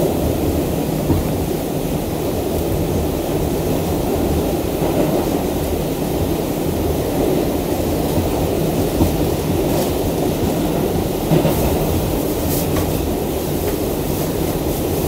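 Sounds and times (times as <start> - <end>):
subway car rumble: 0.0 - 15.0.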